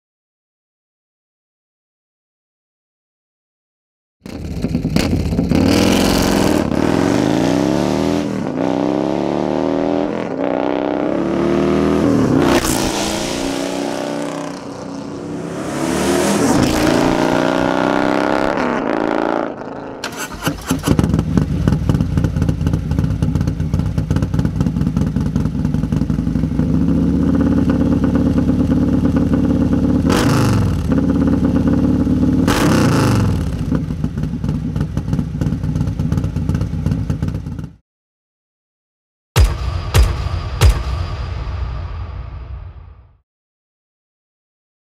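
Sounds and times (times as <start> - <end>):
motorcycle engine revving: 4.2 - 37.8
motorcycle engine idling: 20.8 - 30.0, 33.8 - 37.8.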